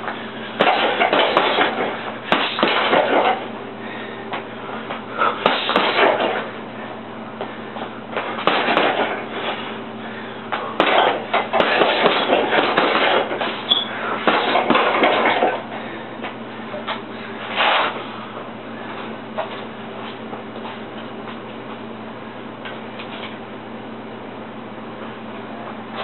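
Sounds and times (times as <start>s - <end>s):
gloves punching heavy bag: 0.6s - 3.4s, 5.4s - 6.5s, 8.2s - 9.7s, 10.5s - 15.6s.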